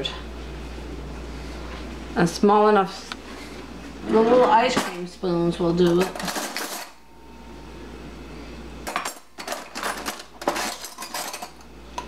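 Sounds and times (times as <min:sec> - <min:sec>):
cutlery clinking and rattling in drawer: 0:05.9 - 0:07.0, 0:08.8 - 0:11.6.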